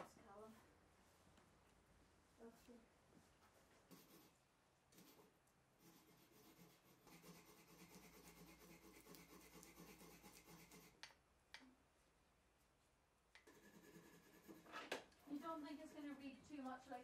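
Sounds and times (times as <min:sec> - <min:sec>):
paintbrush scratching: 0:03.7 - 0:11.1, 0:13.4 - 0:16.8.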